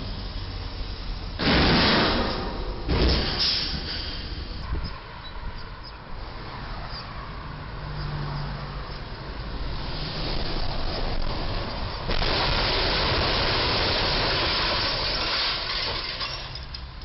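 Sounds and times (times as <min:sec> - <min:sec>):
cars driving past: 0:00.0 - 0:14.6
truck approaching: 0:05.6 - 0:17.0.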